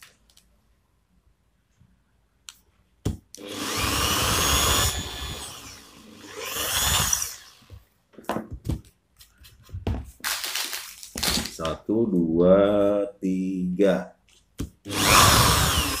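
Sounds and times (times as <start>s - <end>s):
electric drill boring wood: 3.4s - 7.8s, 14.9s - 16.0s.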